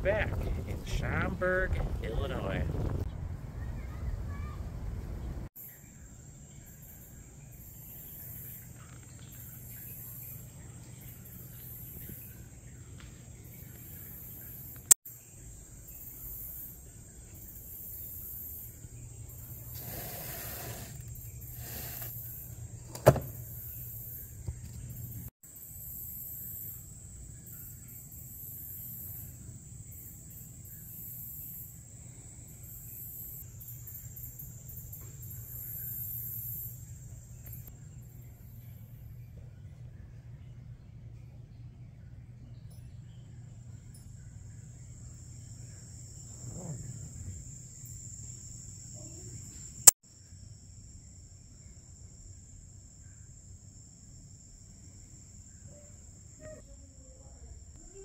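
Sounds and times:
cardboard wheel scraping rustle: 0:19.7 - 0:22.2.

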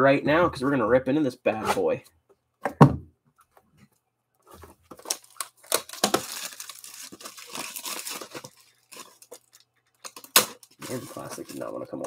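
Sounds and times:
plastic shrink wrap crinkling: 0:04.9 - 0:12.0.

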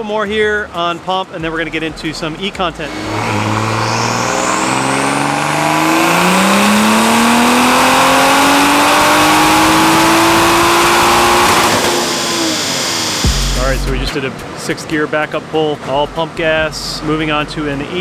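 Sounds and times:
car engine revving at full throttle: 0:02.6 - 0:14.6.

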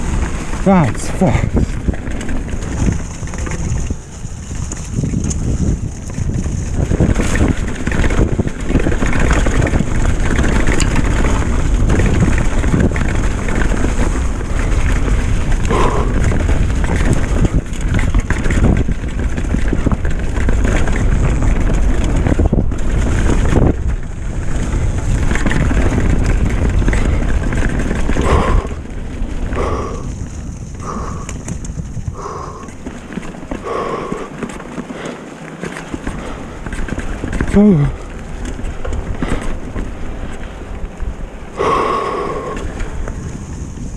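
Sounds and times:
mountain bike rattle and tyre noise: 0:00.0 - 0:43.9
wind buffeting microphone: 0:00.0 - 0:43.9.

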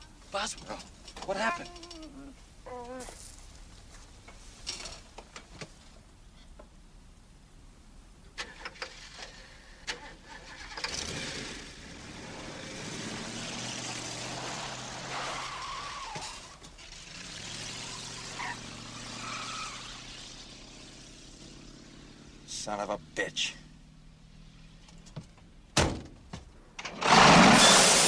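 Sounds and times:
car engine starting and driving: 0:08.4 - 0:28.0.

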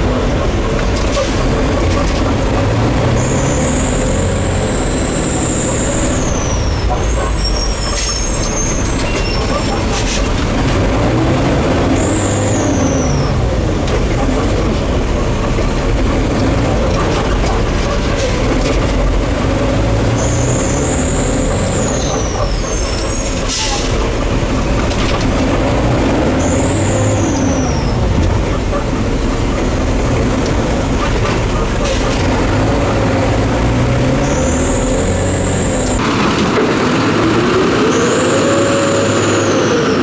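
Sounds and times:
diesel engine revving: 0:00.0 - 0:40.0
high squeal dropping in pitch: 0:03.0 - 0:09.9, 0:37.4 - 0:40.0.

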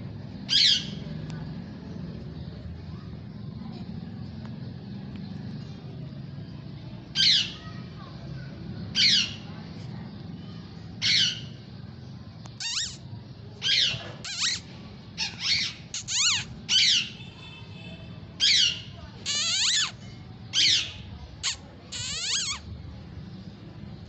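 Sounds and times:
parrot squawking: 0:12.6 - 0:13.0, 0:13.6 - 0:17.2, 0:18.4 - 0:22.6.

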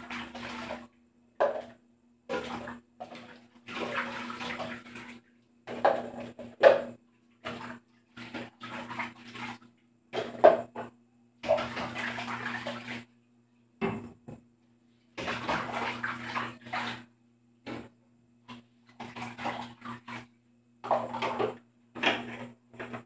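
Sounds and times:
water splashing in metal basin: 0:00.0 - 0:00.9, 0:01.5 - 0:06.8, 0:07.4 - 0:10.6, 0:11.4 - 0:13.1, 0:15.2 - 0:17.1, 0:18.5 - 0:23.0.

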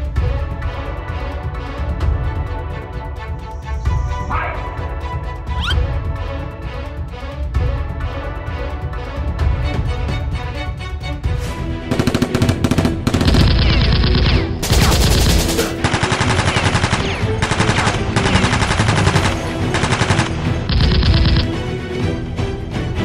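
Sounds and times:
action music: 0:00.0 - 0:23.0
automatic gunfire: 0:11.9 - 0:21.5.

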